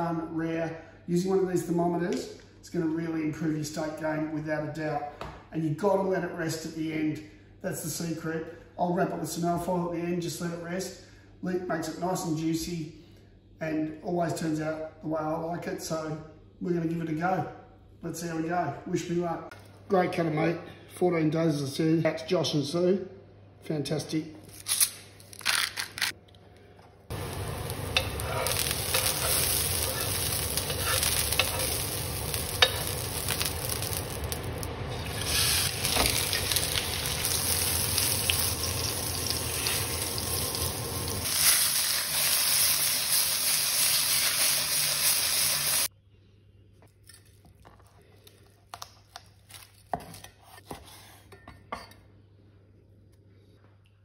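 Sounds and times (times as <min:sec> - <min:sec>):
steaks sizzling in frying pan: 0:27.1 - 0:45.9.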